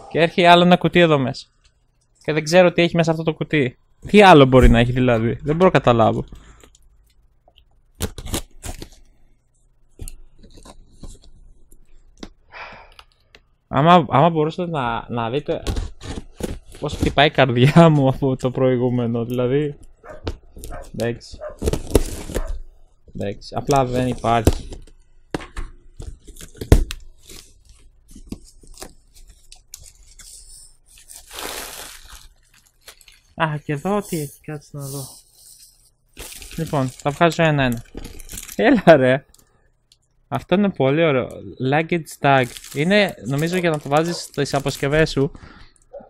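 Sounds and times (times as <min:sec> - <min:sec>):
packing tape ripping from cardboard: 0:08.0 - 0:09.0, 0:21.6 - 0:22.6, 0:31.0 - 0:33.3, 0:36.2 - 0:37.1, 0:37.7 - 0:38.6
packing tape tearing: 0:08.0 - 0:09.1, 0:15.6 - 0:17.1, 0:20.3 - 0:22.6, 0:26.0 - 0:33.4, 0:36.1 - 0:38.6, 0:42.4 - 0:45.2.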